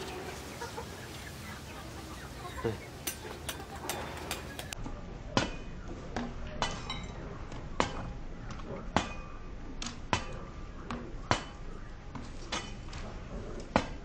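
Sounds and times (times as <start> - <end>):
cleaver chopping gourd on metal: 8.9 - 11.6.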